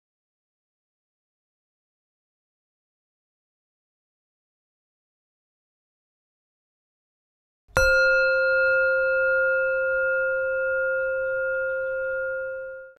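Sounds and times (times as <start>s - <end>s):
bell ringing: 7.8s - 13.0s.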